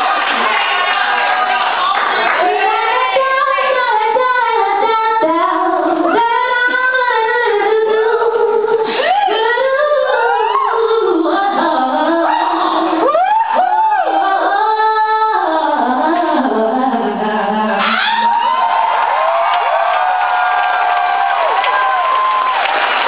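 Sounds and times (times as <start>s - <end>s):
woman singing into microphone: 2.3s - 18.5s.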